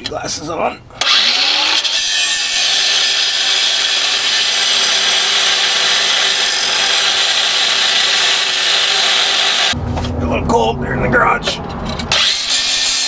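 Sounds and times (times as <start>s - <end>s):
angle grinder grinding steel: 1.0s - 9.8s, 12.0s - 13.0s.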